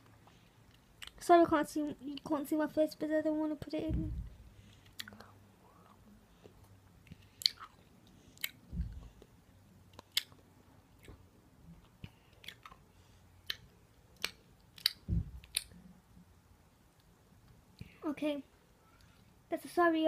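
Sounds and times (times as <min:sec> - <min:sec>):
dull low thumps: 0:03.8 - 0:04.5, 0:08.7 - 0:09.2, 0:15.0 - 0:15.5
person chewing sweet: 0:04.7 - 0:15.8.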